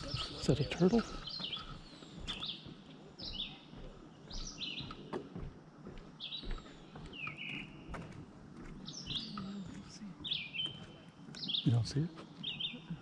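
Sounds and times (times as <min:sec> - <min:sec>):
bird calling: 0:00.0 - 0:03.7, 0:08.8 - 0:13.0.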